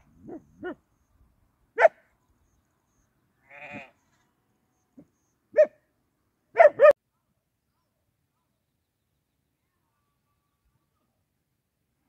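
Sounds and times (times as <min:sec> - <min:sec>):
sheep bleating: 0:03.4 - 0:04.0.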